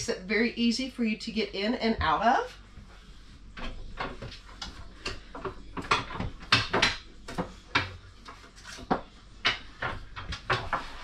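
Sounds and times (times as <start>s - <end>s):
table knocking and scraping: 3.6s - 11.0s.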